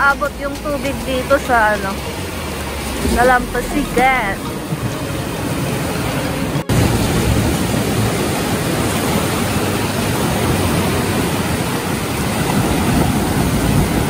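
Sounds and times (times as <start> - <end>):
small waves breaking on shore: 0.0 - 14.0.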